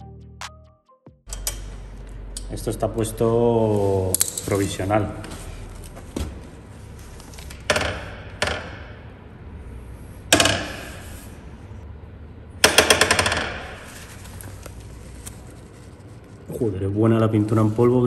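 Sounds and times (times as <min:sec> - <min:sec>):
impact wrench rattling: 0:12.6 - 0:14.0.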